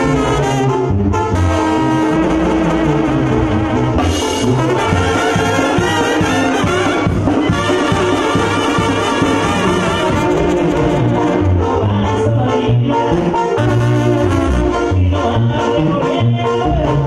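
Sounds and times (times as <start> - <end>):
bass line: 0.0 - 17.0
brass band music: 0.0 - 17.0
drum beat: 4.0 - 11.4.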